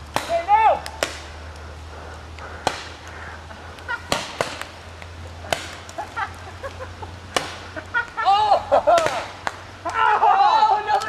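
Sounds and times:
person shouting: 0.3s - 0.8s, 8.2s - 8.7s, 9.9s - 11.0s.

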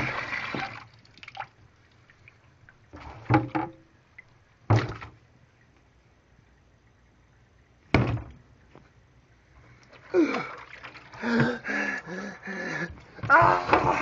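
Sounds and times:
person gasping: 10.1s - 10.6s, 11.2s - 14.0s
person groaning: 11.2s - 14.0s.

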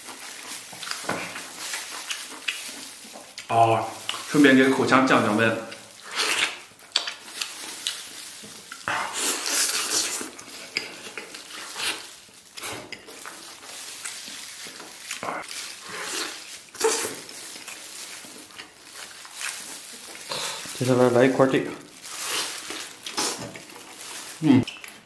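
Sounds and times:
person chewing meat off bone: 0.0s - 4.2s, 5.7s - 13.4s.

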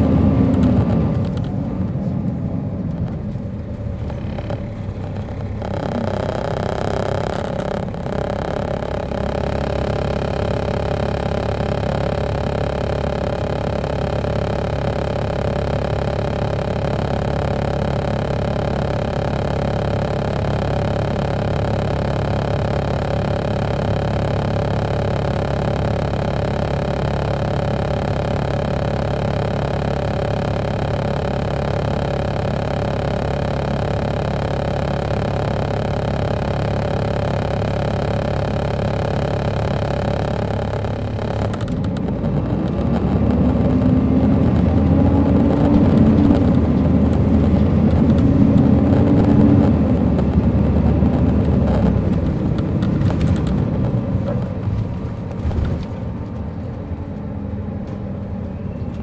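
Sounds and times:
diesel coach engine running: 0.0s - 59.0s.

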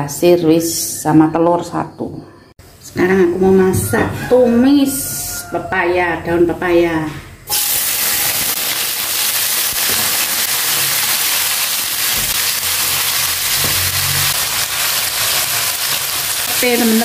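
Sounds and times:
vegetables sizzling in hot oil: 7.5s - 17.0s.

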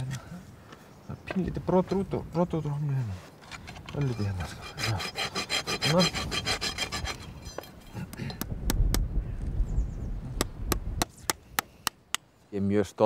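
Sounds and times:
hoof rasp scraping: 3.1s - 8.0s.

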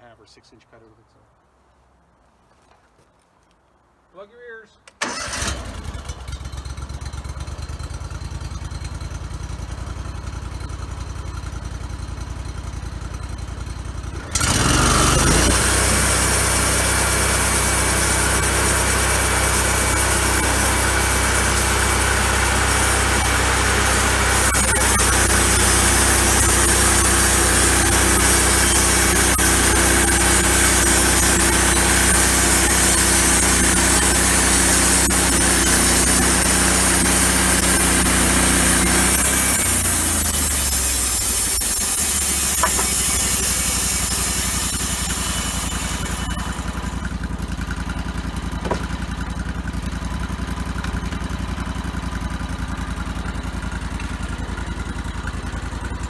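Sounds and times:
sawmill gas engine running: 5.0s - 56.0s
band saw blade cutting log: 14.2s - 47.8s, 48.6s - 49.4s.

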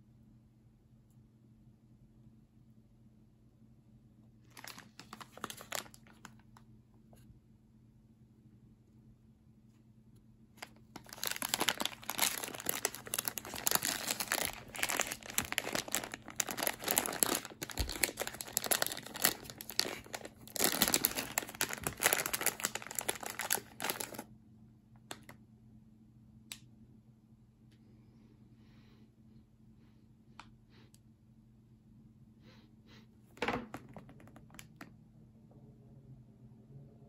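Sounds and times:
plastic bag crinkling: 4.5s - 6.5s, 10.6s - 24.2s.

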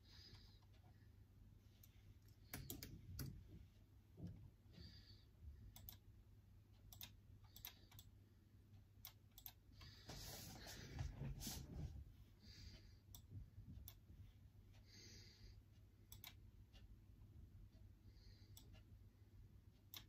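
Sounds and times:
soft rustle: 10.0s - 12.0s.

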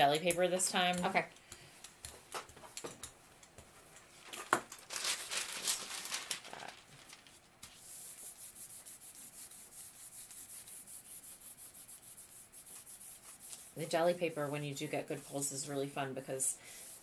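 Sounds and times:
paper crinkling: 4.1s - 7.8s
hand rubbing over paper: 7.6s - 16.0s.

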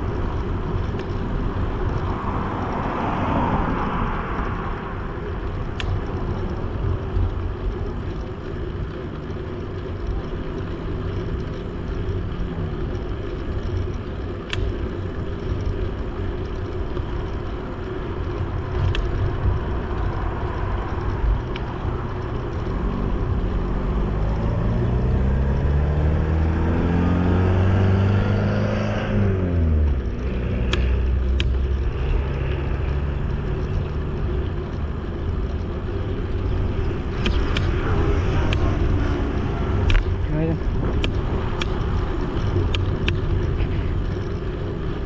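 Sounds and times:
bicycle rolling and wind noise: 0.0s - 45.0s
sharp clicks: 13.7s - 15.0s, 35.9s - 44.4s
vehicle engine accelerating past: 23.5s - 31.2s.

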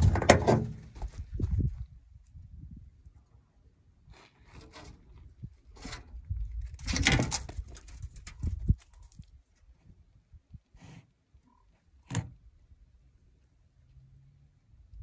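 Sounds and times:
low wind rumble on microphone: 0.0s - 3.2s, 5.0s - 10.7s.

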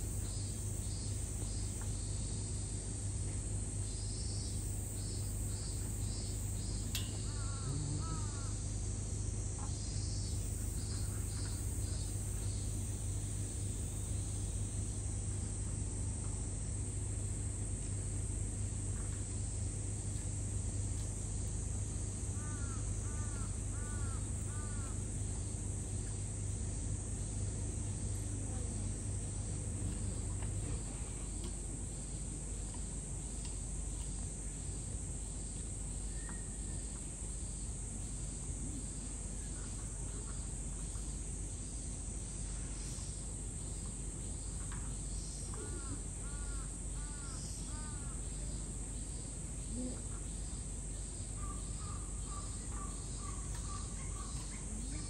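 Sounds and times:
high-pitched insect buzz: 0.0s - 2.4s, 3.9s - 15.0s
crow cawing: 7.2s - 8.5s, 22.4s - 25.0s, 45.6s - 48.1s.

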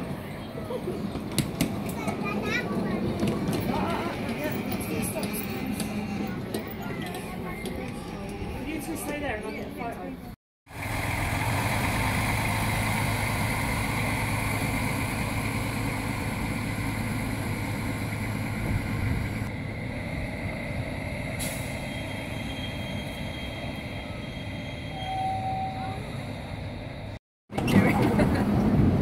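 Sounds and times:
diesel locomotive engine running: 10.7s - 29.0s.

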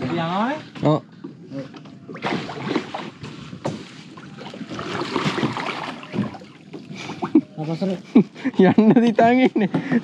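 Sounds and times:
kayak paddles splashing in water: 2.0s - 7.4s.

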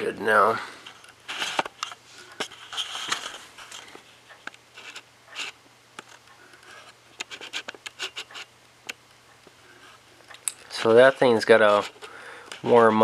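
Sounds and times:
handling clicks and scrapes: 0.8s - 8.5s, 10.7s - 12.9s.

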